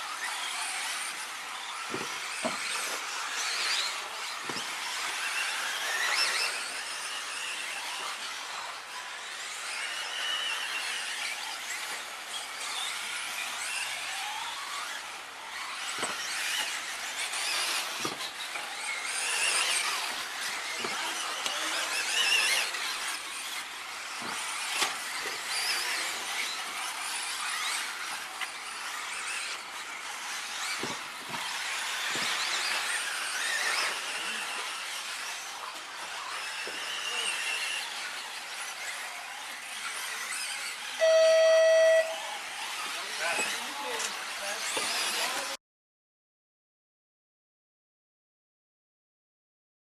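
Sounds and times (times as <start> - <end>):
rc car motors whining: 0.0 - 45.6
electronic beep: 41.0 - 42.3.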